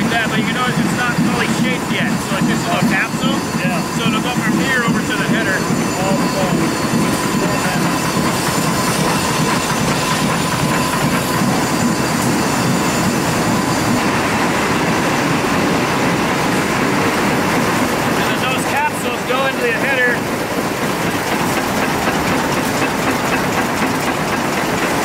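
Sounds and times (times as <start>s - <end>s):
machines clattering: 0.0s - 25.0s.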